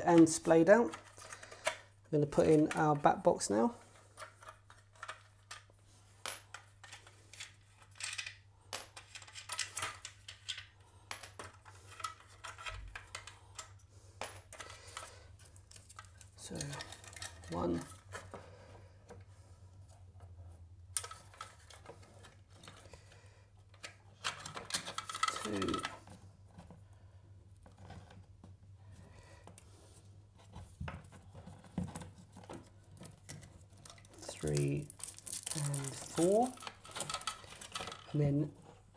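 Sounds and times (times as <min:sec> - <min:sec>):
small hard objects clattering: 0:24.3 - 0:26.0, 0:32.5 - 0:38.4
cables rubbing against plastic: 0:27.5 - 0:38.9.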